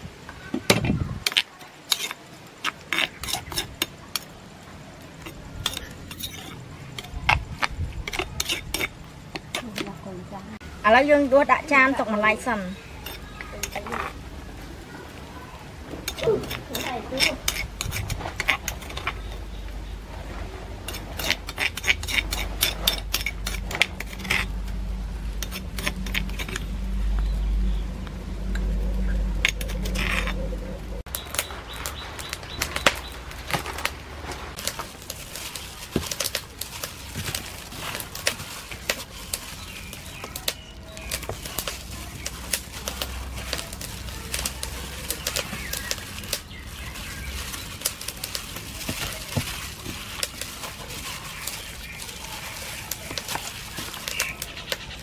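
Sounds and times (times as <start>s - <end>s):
low rumble: 22.2s - 35.0s
gloved hand mixing in steel bowl: 33.4s - 55.0s.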